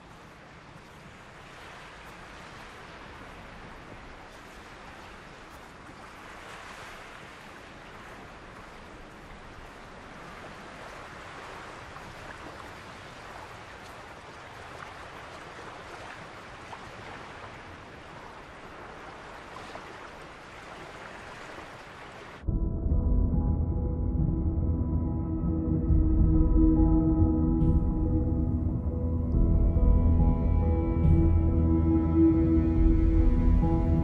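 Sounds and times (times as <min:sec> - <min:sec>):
waves lapping at shore: 0:00.0 - 0:22.5.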